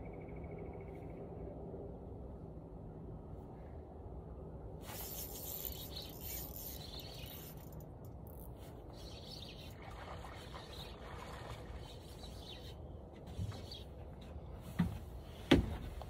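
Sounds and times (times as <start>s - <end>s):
continuous low rumble: 0.0s - 16.0s.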